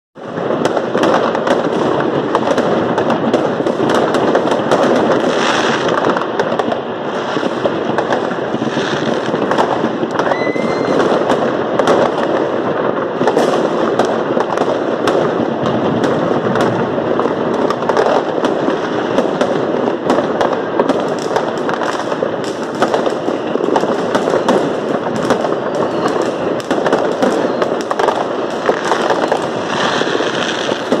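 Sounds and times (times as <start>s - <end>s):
fireworks crackling and banging: 0.2s - 31.0s
rising firework whistle: 7.0s - 12.4s, 22.9s - 31.0s.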